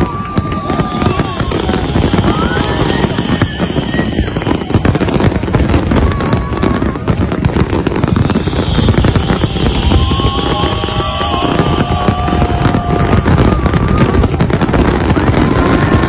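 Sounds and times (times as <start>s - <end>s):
fireworks bangs and crackling: 0.0s - 16.0s.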